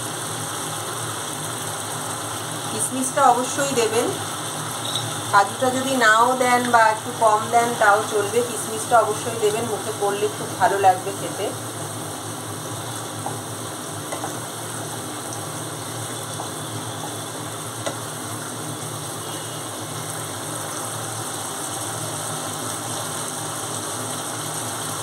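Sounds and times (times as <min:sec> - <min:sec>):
curry simmering and sizzling: 0:00.0 - 0:25.0
spatula knocking against pan: 0:14.1 - 0:14.4.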